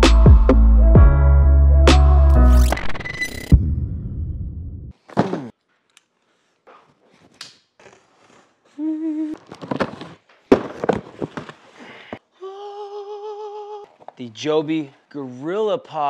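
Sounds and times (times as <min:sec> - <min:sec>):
cardboard rustles and knocks: 0:09.5 - 0:11.6.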